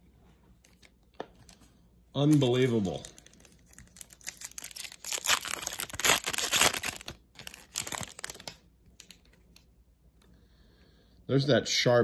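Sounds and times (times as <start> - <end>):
foil wrapper crinkling and tearing: 2.2 - 9.2.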